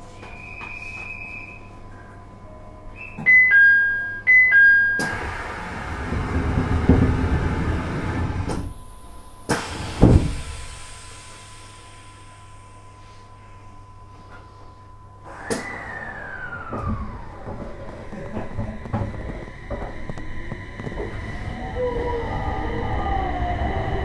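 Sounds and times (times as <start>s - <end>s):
two-note electronic door chime: 3.1s - 5.2s
train doors sliding shut: 5.0s - 8.8s, 9.5s - 11.1s, 15.3s - 22.8s.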